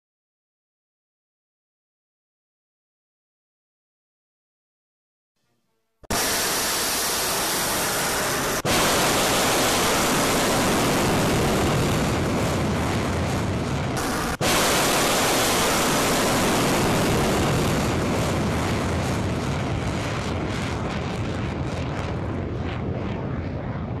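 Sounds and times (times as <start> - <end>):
rocket motor roaring: 6.1 - 24.0.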